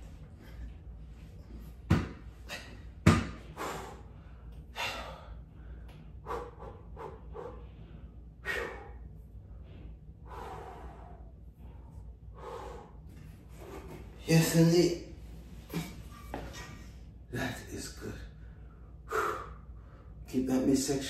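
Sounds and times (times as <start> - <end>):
man breathing hard: 2.4 - 14.2, 18.3 - 20.3.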